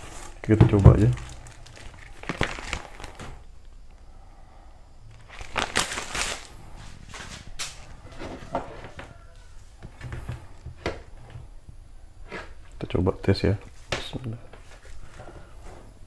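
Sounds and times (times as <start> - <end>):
paper rustling: 0.0 - 3.4, 5.2 - 8.6.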